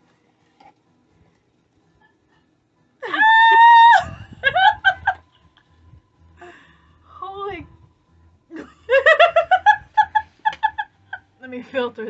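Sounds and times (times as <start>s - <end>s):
woman squealing with delight: 3.0s - 4.9s
woman laughing squeals: 3.0s - 5.2s.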